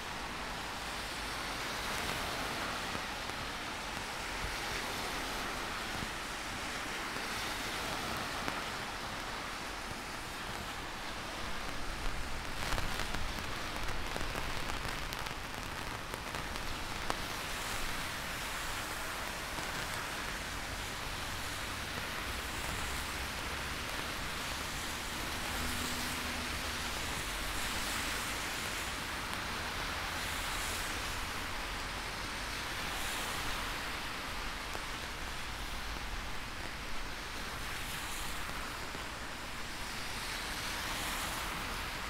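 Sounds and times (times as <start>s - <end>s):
heavy rain falling: 0.0s - 42.0s
sharp raindrop taps: 11.5s - 17.9s.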